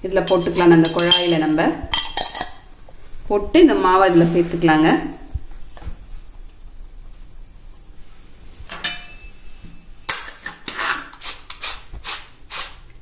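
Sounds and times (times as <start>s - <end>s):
metal clink with short ring: 8.7s - 10.2s.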